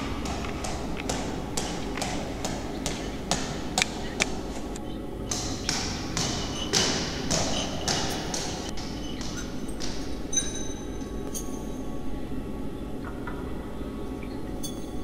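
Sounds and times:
ball bouncing on stone stairs: 0.0 - 4.4, 5.3 - 10.1.

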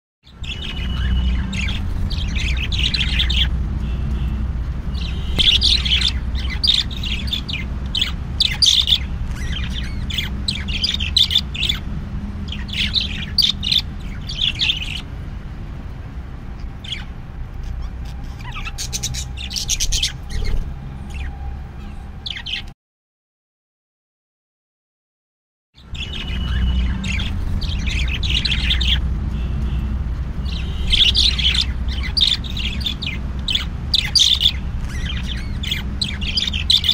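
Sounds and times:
birds chirping and squawking: 0.3 - 22.8, 25.8 - 36.9.

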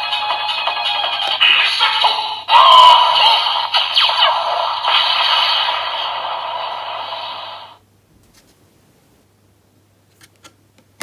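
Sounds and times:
electronic whoosh from toy speaker: 2.6 - 7.8.

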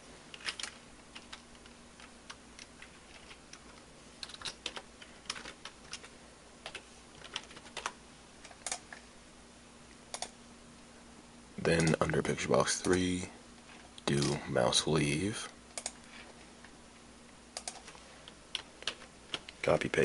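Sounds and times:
faint low hum: 0.0 - 20.0
keyboard typing: 0.3 - 8.9, 17.6 - 19.5.

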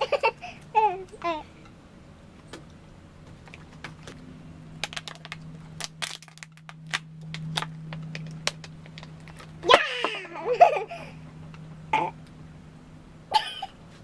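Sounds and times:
low steady hum: 0.0 - 14.0
plastic bottle crackling: 4.8 - 9.6.

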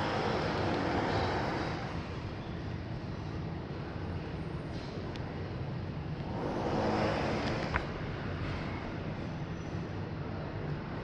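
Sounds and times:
low traffic rumble: 0.0 - 11.0
vehicle passing: 6.2 - 8.9.

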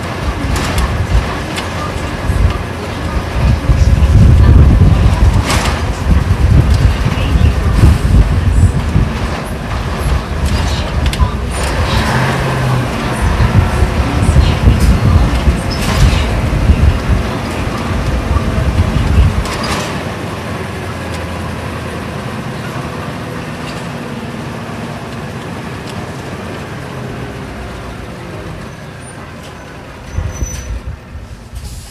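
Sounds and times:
bus diesel engine running: 0.0 - 31.9
brief burst of noise: 30.1 - 31.9.

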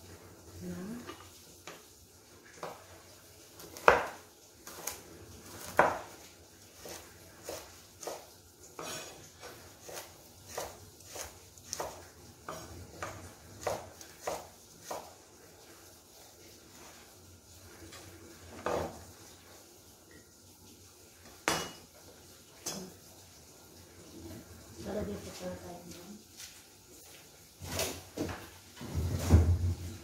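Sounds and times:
knife chopping on wooden board: 3.8 - 5.0, 5.6 - 6.1, 6.8 - 15.2.

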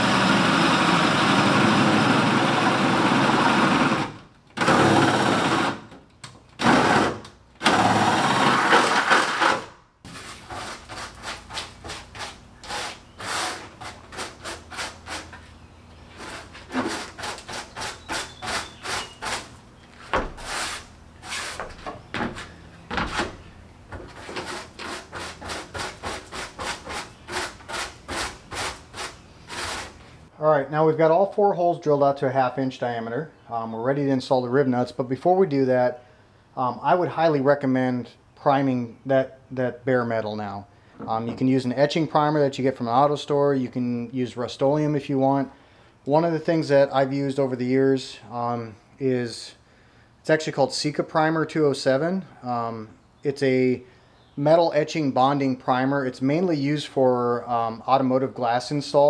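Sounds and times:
power drill boring metal: 0.0 - 5.8
hand brush sweeping: 10.1 - 15.5, 16.1 - 21.8, 24.1 - 30.0.

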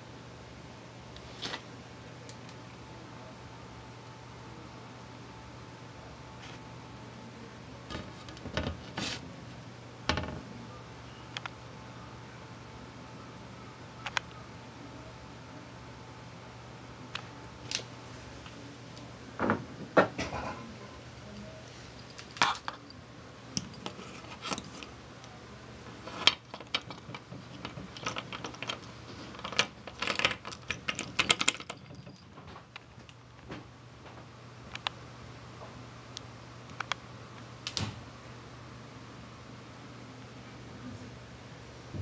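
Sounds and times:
steady low hum: 0.0 - 42.0
light clicks taps and rattles: 26.1 - 35.0.

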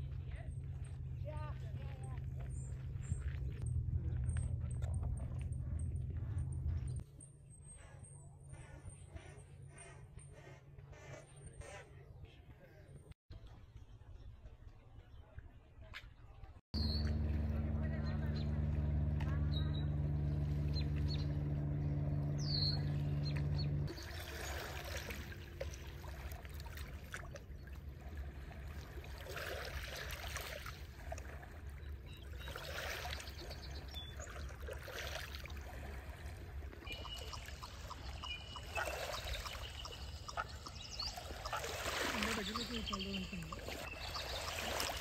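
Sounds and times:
steady low hum: 0.0 - 10.7, 16.8 - 29.3
waves lapping on pebbles: 23.9 - 31.7, 41.2 - 45.0
faint bird chirps: 36.8 - 45.0.

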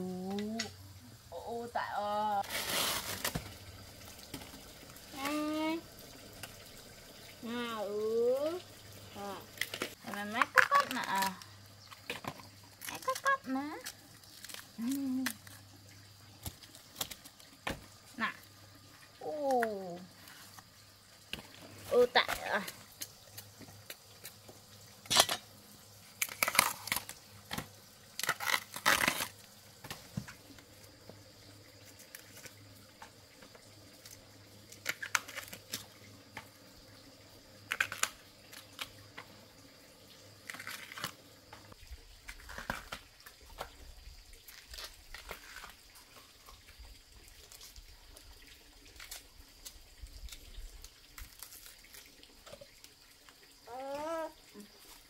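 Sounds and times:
bamboo husks tearing by hand: 2.4 - 5.4, 9.2 - 15.7, 16.3 - 18.3, 25.0 - 30.4, 33.9 - 36.0, 37.6 - 39.2, 40.4 - 43.8, 44.4 - 46.2, 48.8 - 52.7.

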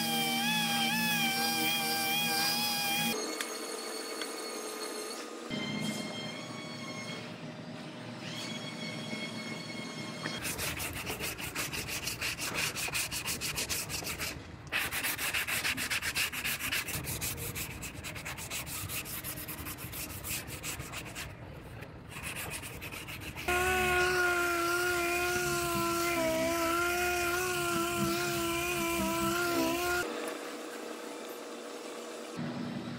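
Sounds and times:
sanding block rasping: 10.4 - 21.4, 22.1 - 30.0.

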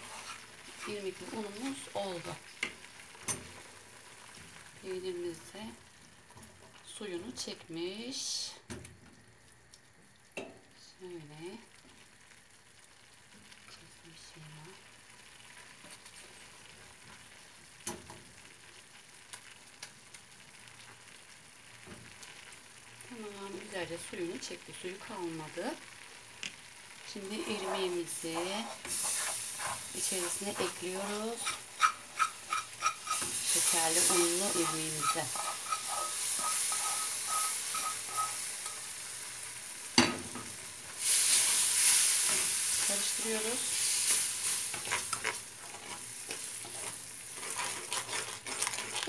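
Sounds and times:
wooden spoon scraping a pan: 0.0 - 3.8, 27.1 - 39.0, 41.0 - 49.0
cheese sizzling faintly in a pan: 0.0 - 49.0
loud sizzling hiss: 27.1 - 47.5
spatula stirring clicks: 28.4 - 38.9, 44.1 - 49.0.

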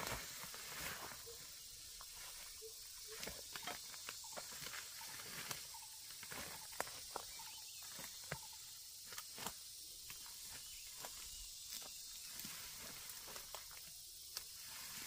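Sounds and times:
steady high hiss: 0.0 - 3.0, 8.4 - 15.0
footsteps in undergrowth: 0.0 - 15.0
leaves and stems rustling: 0.0 - 15.0.

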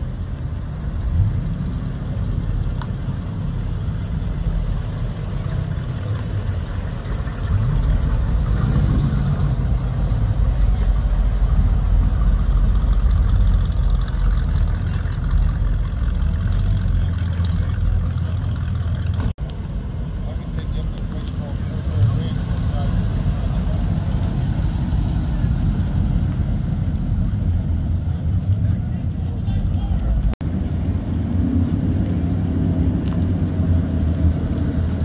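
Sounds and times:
car engine running at low speed: 0.0 - 35.0.

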